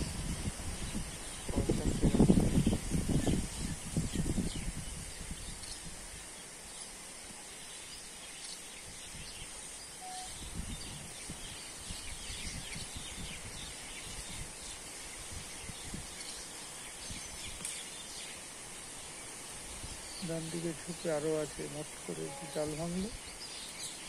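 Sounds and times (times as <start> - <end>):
high-pitched hiss: 0.0 - 12.0, 13.6 - 24.0
bird chirps: 9.9 - 10.6, 22.1 - 24.0
short whistled note: 10.0 - 10.3.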